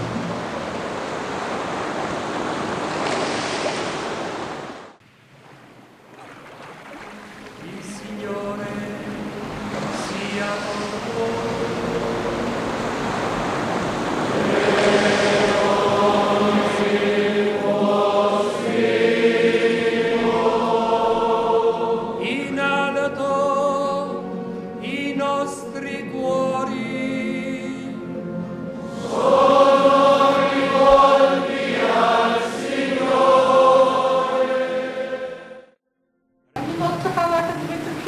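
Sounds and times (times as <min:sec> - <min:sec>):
choir singing sacred music: 0:07.6 - 0:35.8.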